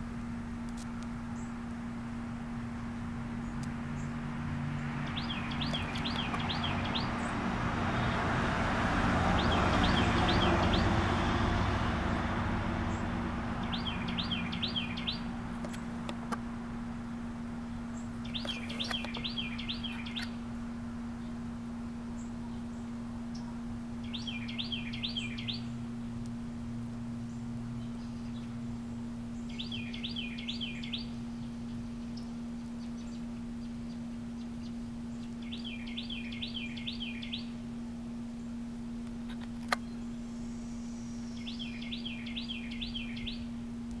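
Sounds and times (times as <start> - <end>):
steady low hum: 0.0 - 44.0
passing vehicle: 2.3 - 21.0
small bird chirping: 4.8 - 7.4, 9.4 - 11.0, 12.9 - 16.3, 17.9 - 20.4, 22.2 - 25.8, 27.2 - 37.6, 39.3 - 43.5.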